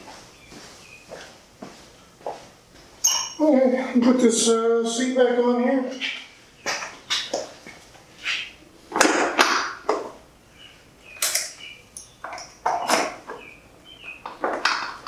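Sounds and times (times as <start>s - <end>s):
faint squeaks: 3.0s - 3.6s.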